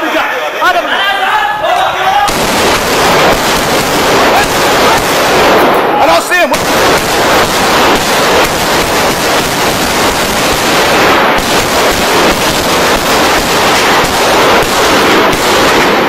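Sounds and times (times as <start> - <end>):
small-arms gunfire: 2.3 - 16.0.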